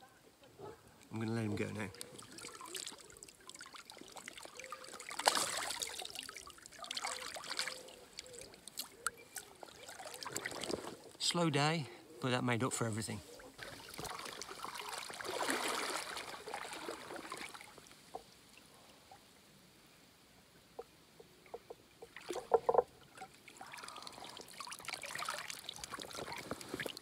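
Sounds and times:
river water splashing and sloshing: 0.6s - 11.5s, 13.0s - 19.5s, 20.6s - 27.0s
sharp splashes or knocks: 5.0s - 7.8s.

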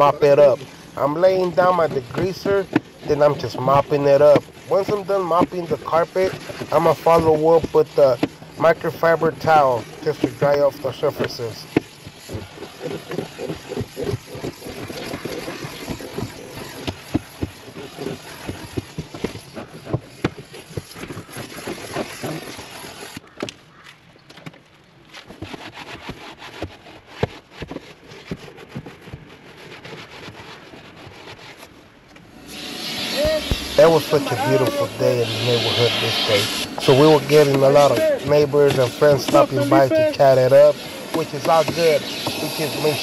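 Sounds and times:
steam cleaner hissing: 0.0s - 20.0s, 32.3s - 43.0s.

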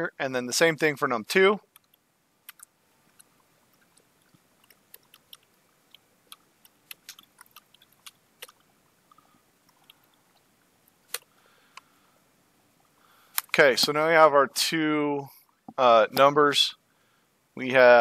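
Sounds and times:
computer keyboard keys clicking: 1.8s - 4.0s, 4.6s - 8.6s.

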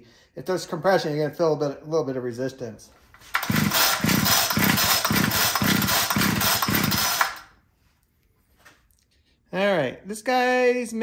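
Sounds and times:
recoil starter pulled: 3.1s - 7.5s
engine cranking against compression: 3.3s - 7.5s.

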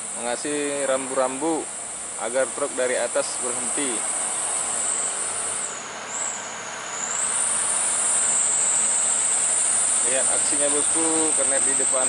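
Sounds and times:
insects droning: 0.0s - 12.0s
truck diesel engine running: 0.0s - 12.0s.

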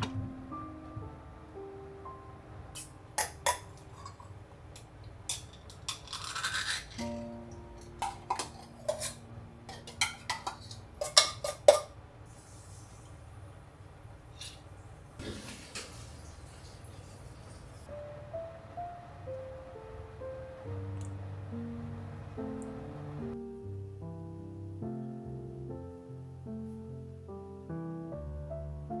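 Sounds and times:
soft background music: 0.0s - 4.3s, 6.9s - 10.3s, 17.8s - 29.0s.

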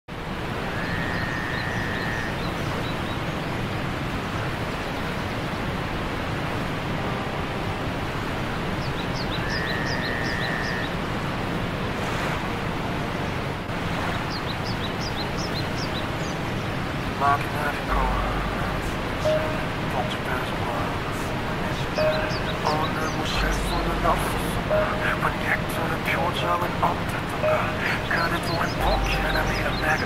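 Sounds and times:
waterfall rushing: 0.1s - 30.0s
birds chirping: 0.4s - 30.0s
whistled bird note: 0.7s - 2.6s, 9.2s - 10.9s.

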